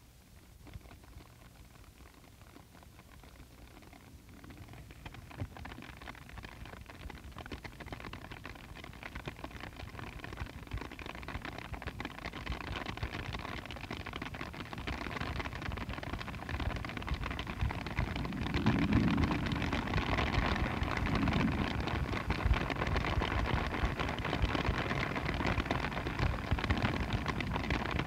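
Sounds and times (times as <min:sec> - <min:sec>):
crackling rain-like noise texture: 0:00.0 - 0:28.0
low hum: 0:17.3 - 0:28.0.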